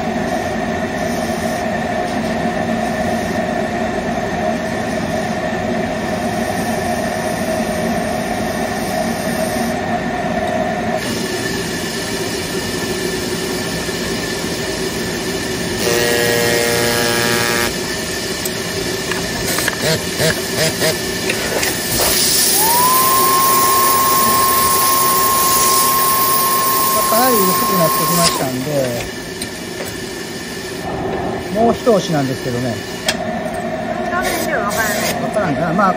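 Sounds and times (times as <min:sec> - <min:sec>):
machine hum: 0:12.8 - 0:31.9
short buzz: 0:15.8 - 0:17.8
steam rushing from spotting gun: 0:17.7 - 0:33.3
rising tone: 0:22.5 - 0:28.4.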